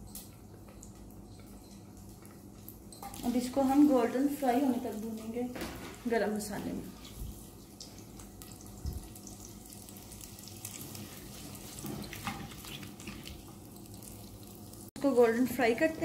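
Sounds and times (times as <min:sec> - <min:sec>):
onions sizzling in hot fat: 0:06.0 - 0:16.0
spatula scraping and tapping pot: 0:11.0 - 0:13.4.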